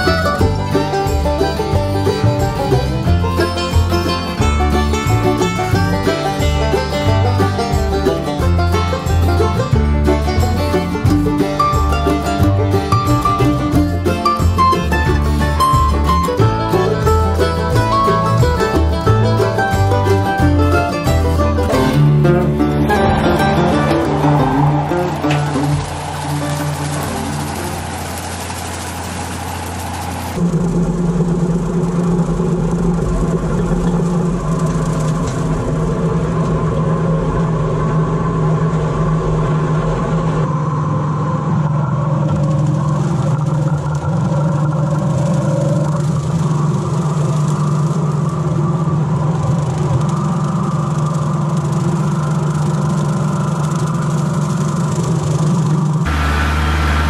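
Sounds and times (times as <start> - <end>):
guitar music: 0.0 - 28.8
tractor mower engine drone: 0.0 - 57.0.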